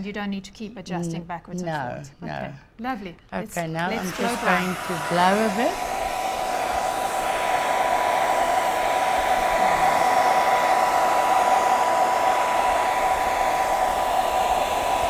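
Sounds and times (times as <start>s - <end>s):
hair dryer blowing: 3.9s - 15.0s.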